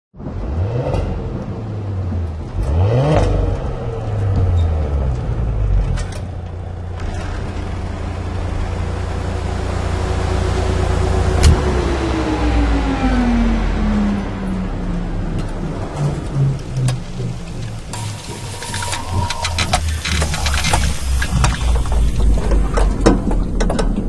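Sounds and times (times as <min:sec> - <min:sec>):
car engine revving and rumbling: 0:00.1 - 0:24.0
falling tone: 0:06.8 - 0:24.0.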